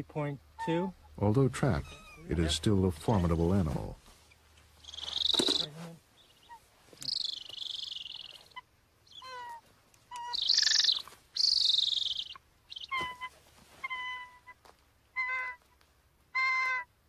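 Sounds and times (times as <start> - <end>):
eagle yelping notes: 0.5 - 2.5, 4.3 - 16.9
eagle high-pitched calls: 4.3 - 16.9.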